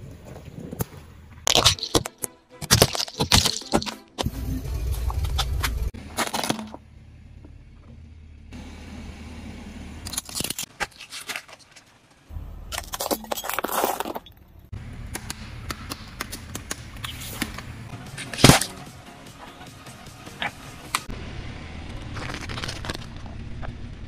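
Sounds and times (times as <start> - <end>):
objects crunching under tyre: 0.0 - 4.3, 5.0 - 6.8, 10.0 - 14.7, 15.9 - 19.6, 21.8 - 23.8.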